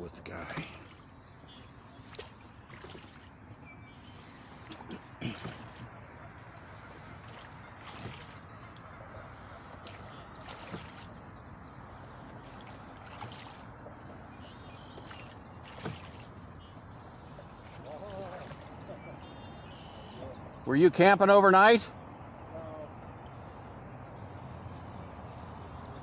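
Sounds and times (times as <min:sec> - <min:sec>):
oars splashing in water: 0:00.0 - 0:20.4.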